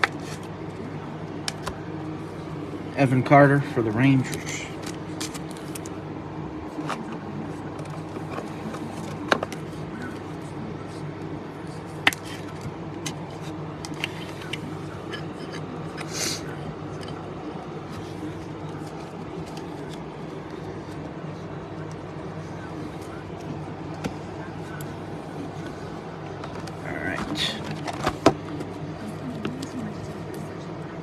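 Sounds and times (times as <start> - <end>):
steady low hum: 0.0 - 31.0
card rustle: 4.2 - 6.0.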